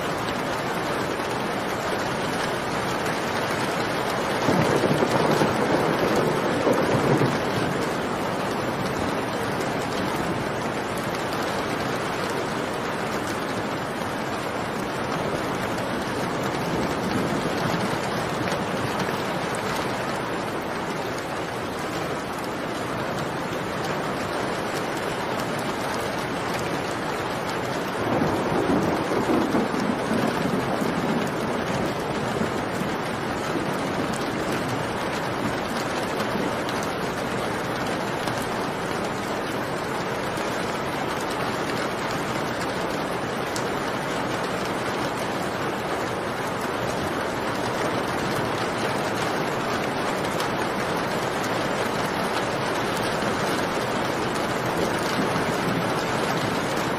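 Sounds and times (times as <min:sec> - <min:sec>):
steady rain falling: 0:00.0 - 0:56.9
rumble of thunder: 0:04.3 - 0:09.2, 0:27.9 - 0:35.9.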